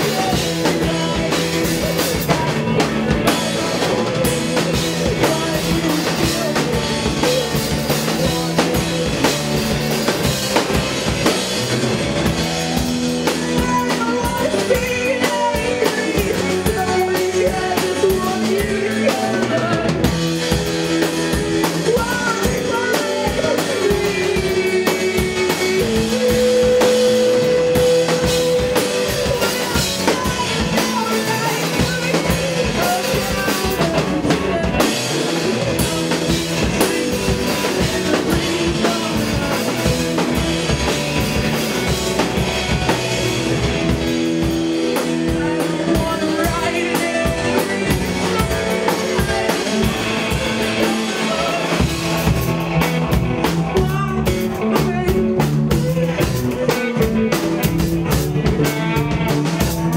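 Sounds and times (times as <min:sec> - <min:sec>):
drum kit beating: 0:00.0 - 0:59.9
sustained electric guitar: 0:00.0 - 0:59.9.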